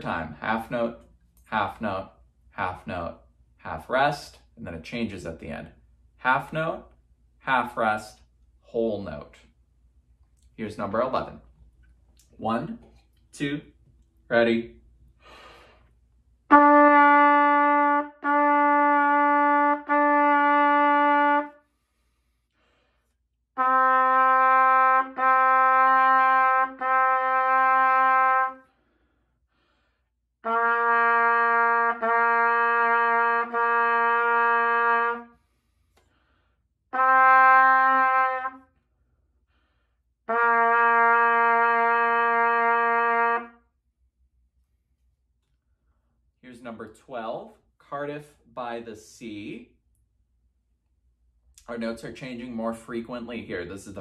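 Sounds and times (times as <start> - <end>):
solo trumpet playing held notes: 16.5 - 21.6, 23.6 - 28.6, 30.4 - 35.4, 36.9 - 38.8, 40.3 - 43.6.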